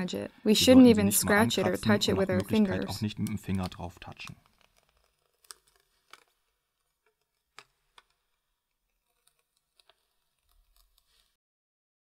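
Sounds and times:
plastic film peeling crackles: 2.3 - 11.4.

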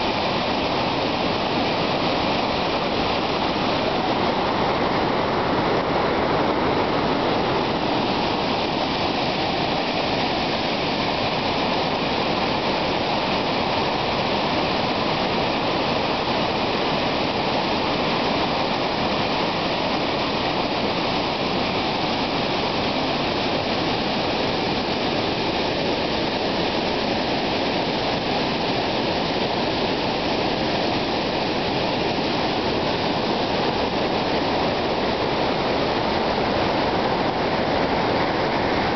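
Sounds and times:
waterfall rushing: 0.0 - 38.9.

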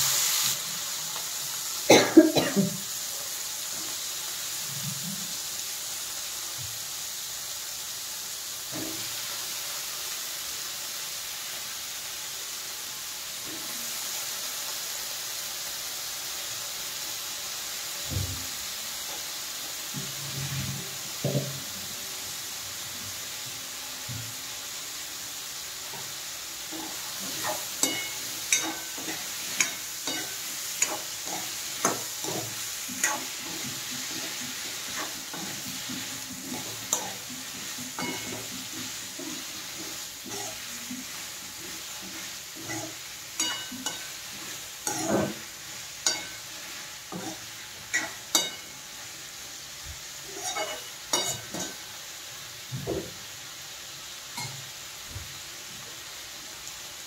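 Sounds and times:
frying sizzle: 0.0 - 57.0
metal spoon scraping pan: 26.7 - 48.7, 50.3 - 51.8.

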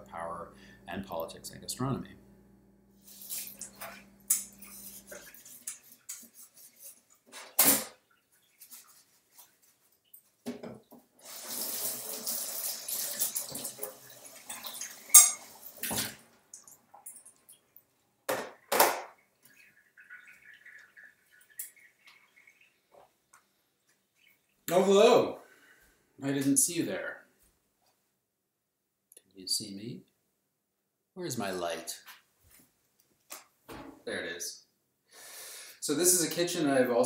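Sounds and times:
clinks and knocks at sink: 10.4 - 11.0
faucet running into sink: 11.2 - 16.2.

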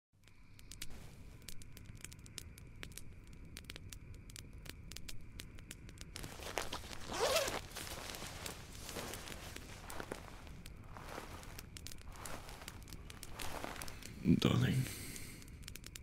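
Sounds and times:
campfire crackling and popping: 0.2 - 16.0
tent zipper pulled open: 6.3 - 10.4.

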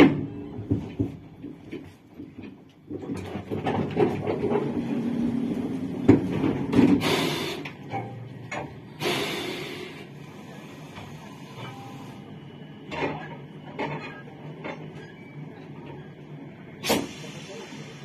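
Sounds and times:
compressed air hissing: 7.0 - 7.7, 9.0 - 10.0.

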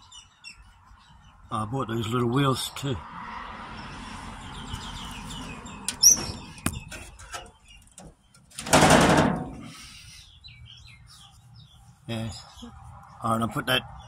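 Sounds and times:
metal drawer knocks: 8.6 - 9.6.

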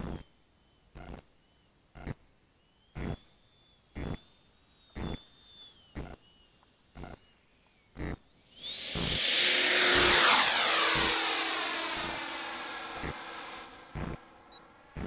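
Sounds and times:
model jet engine whine: 4.7 - 15.0.

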